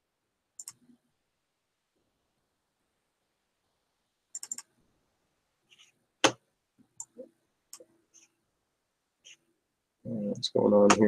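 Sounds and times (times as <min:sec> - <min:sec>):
mouse and keyboard clicks: 0:00.6 - 0:00.8, 0:04.3 - 0:04.7.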